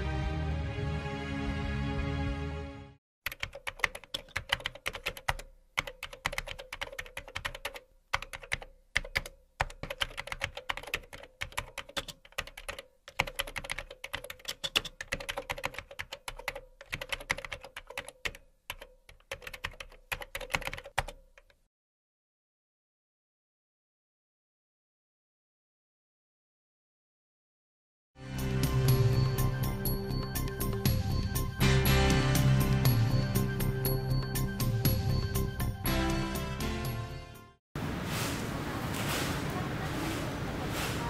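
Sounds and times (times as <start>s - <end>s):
music: 0.0s - 3.0s, 28.2s - 37.6s
keyboard typing: 3.2s - 21.6s.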